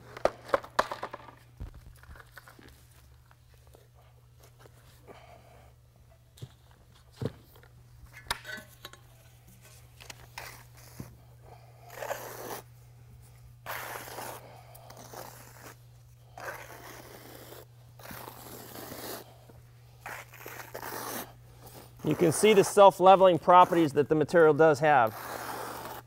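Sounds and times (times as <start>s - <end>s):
trowel scraping wet epoxy: 11.9s - 12.6s, 13.6s - 15.8s, 16.4s - 19.3s, 20.0s - 26.0s.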